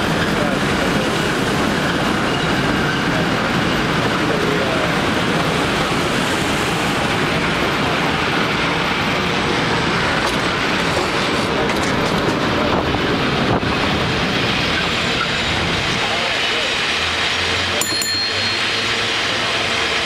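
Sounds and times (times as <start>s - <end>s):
cable car rumbling on rails: 0.0s - 20.0s.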